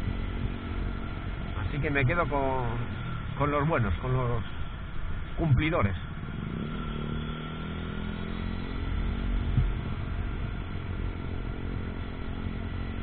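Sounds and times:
motorcycle engine running: 0.0s - 13.0s
wind rumble on microphone: 8.7s - 13.0s.

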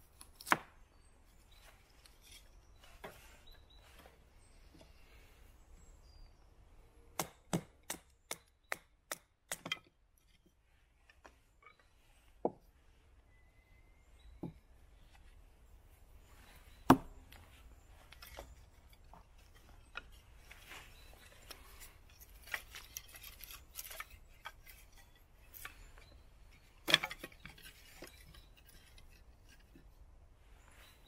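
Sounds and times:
knife scraping wood: 17.8s - 30.0s.

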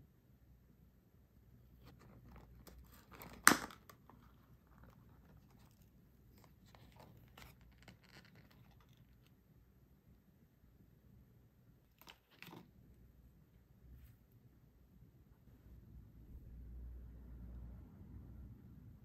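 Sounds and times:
plastic lid crinkling and clicking: 1.9s - 5.8s
plastic lid snapping open: 3.1s - 4.0s.

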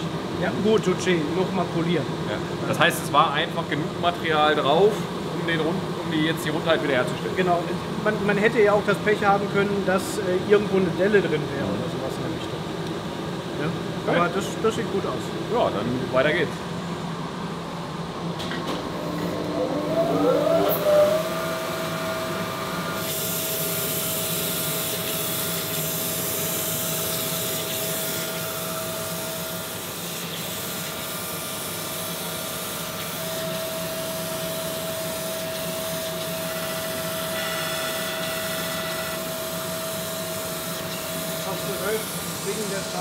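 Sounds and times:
grinding machine whine: 18.7s - 43.0s
grinding wheel hiss: 23.0s - 33.8s.

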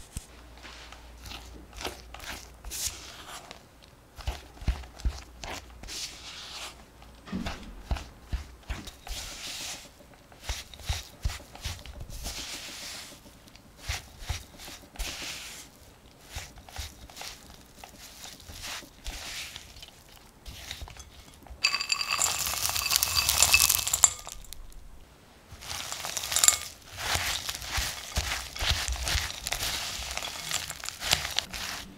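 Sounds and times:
spatula scraping dough in glass bowl: 8.0s - 24.4s, 25.6s - 31.9s
dry mix-ins rattling into bowl: 19.6s - 31.9s
glass bowl ringing: 21.6s - 24.6s.

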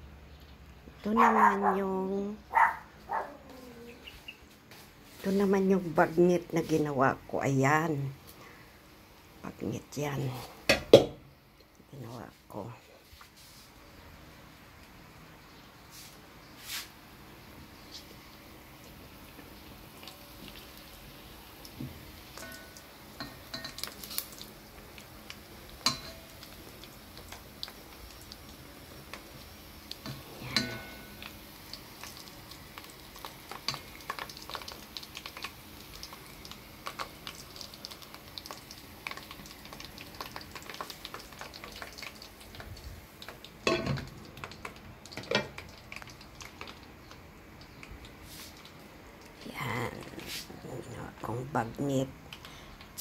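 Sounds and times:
meat deep-frying in oil: 5.0s - 53.0s
utensil clanking on metal pot: 25.8s - 26.3s, 30.1s - 31.1s, 43.6s - 44.1s.

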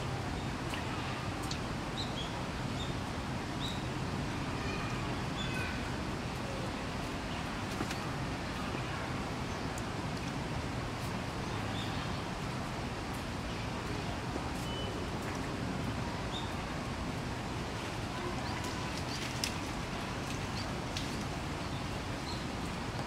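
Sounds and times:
outdoor background noise: 0.0s - 23.0s.

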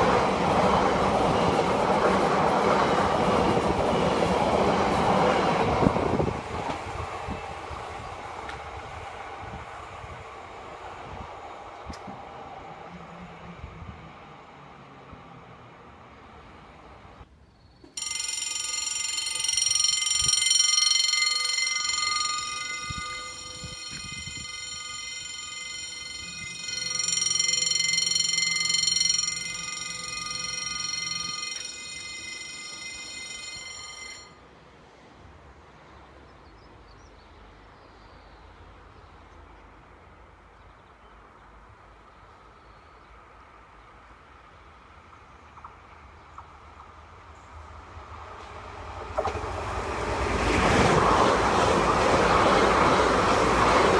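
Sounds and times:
faint train noise: 0.0s - 53.9s
level crossing warning bell: 18.0s - 34.5s.

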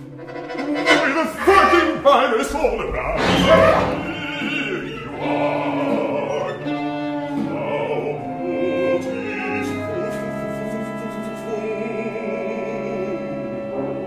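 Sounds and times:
chamber ensemble sustained notes: 0.0s - 11.0s
opera voices singing with vibrato: 3.0s - 14.0s.

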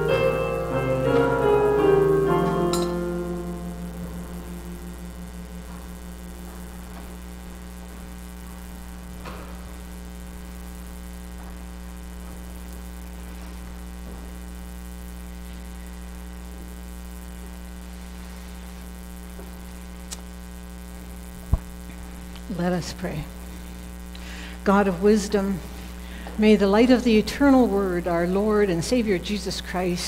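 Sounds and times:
hymn accompaniment note: 0.0s - 5.8s
electrical mains hum: 0.0s - 30.0s.

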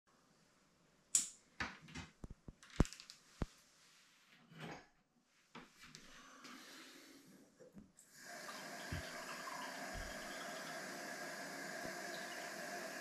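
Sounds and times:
soft rustling movement: 3.2s - 4.6s.

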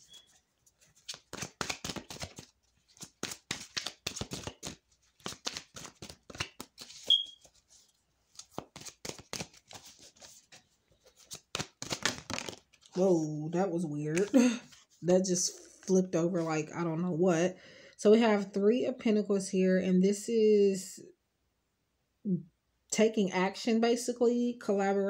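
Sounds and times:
cards being shuffled: 0.1s - 13.0s, 14.1s - 14.9s.

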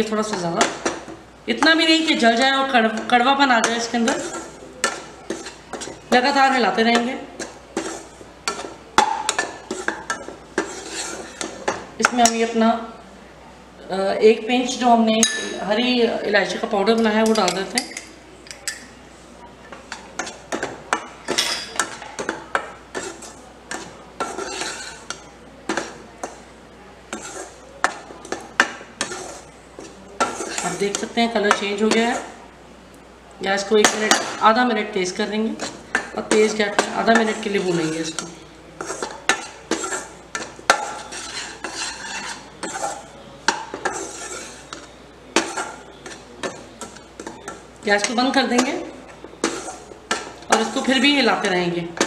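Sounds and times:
skimmer scraping pan: 9.3s - 11.6s, 22.9s - 25.2s, 27.1s - 32.4s, 35.6s - 48.7s, 49.4s - 51.2s.

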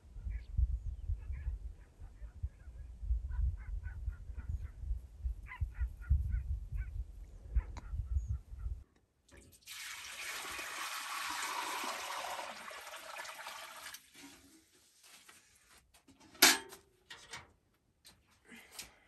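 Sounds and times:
milk pouring into metal pan: 9.3s - 14.4s
metal bucket clanking down: 16.4s - 17.4s.

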